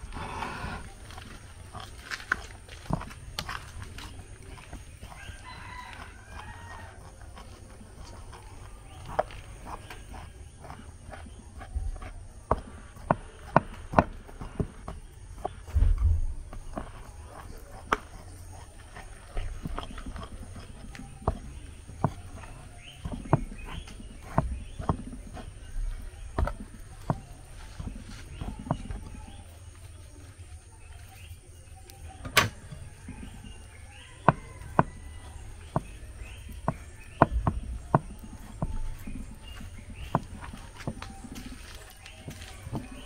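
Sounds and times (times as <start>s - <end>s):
dough thumping: 6.0s - 29.5s.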